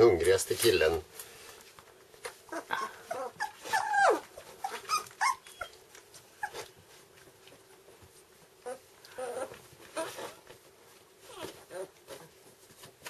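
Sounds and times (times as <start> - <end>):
puppies whimpering: 2.5 - 6.7, 8.6 - 10.4, 11.2 - 12.0.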